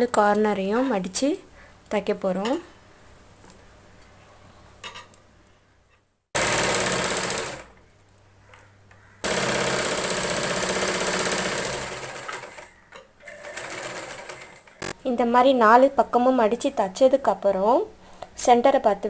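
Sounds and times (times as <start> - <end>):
sewing machine stitching: 6.4 - 7.7, 9.2 - 15.0.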